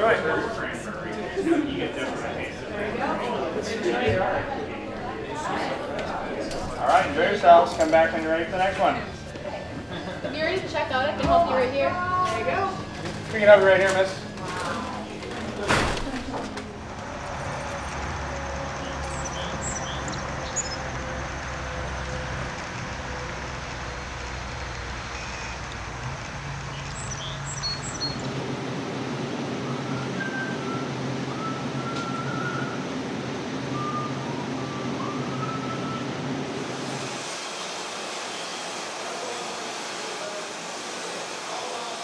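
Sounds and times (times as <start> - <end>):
brewery machinery drone: 0.0 - 42.0.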